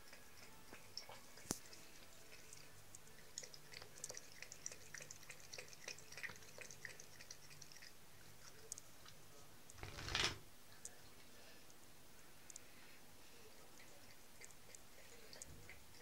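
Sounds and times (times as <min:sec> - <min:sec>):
cat lapping water: 0:00.0 - 0:09.4, 0:13.4 - 0:16.0.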